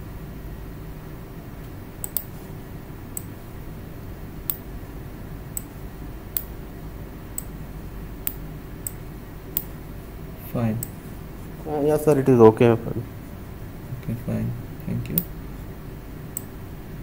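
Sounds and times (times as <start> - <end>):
low steady hum: 0.0 - 17.0
computer mouse clicking: 2.0 - 2.3.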